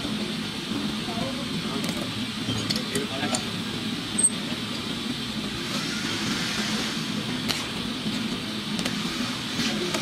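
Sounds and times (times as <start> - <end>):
background rumble with low hum: 0.0 - 10.0.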